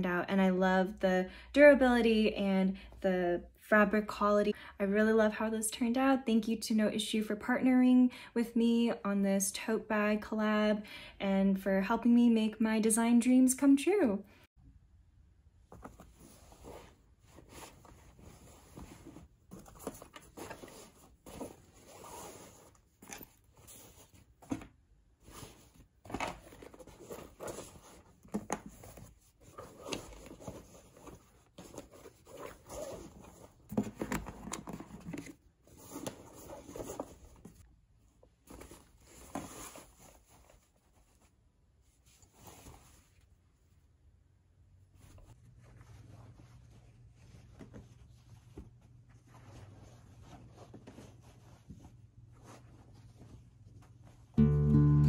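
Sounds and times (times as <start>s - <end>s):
fabric bag rustling and scraping: 15.7s - 24.6s, 25.2s - 33.7s.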